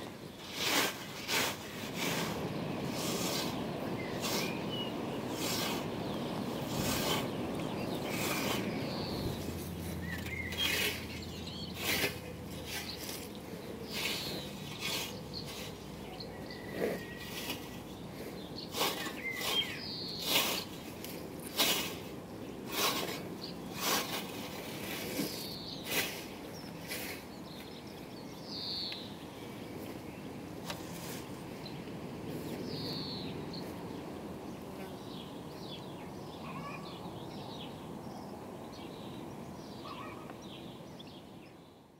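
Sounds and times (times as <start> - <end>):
scythe swishing through grass: 0.3 - 5.9, 6.6 - 16.0, 16.7 - 17.9, 18.7 - 22.1, 22.7 - 27.3, 30.6 - 31.4
bird chirps: 3.6 - 20.8, 25.2 - 29.2, 31.6 - 33.7, 35.0 - 41.8.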